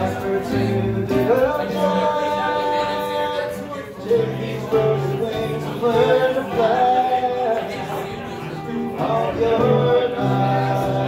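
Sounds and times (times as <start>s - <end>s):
acoustic string band playing: 0.0s - 11.0s
man singing into a microphone: 0.0s - 11.0s.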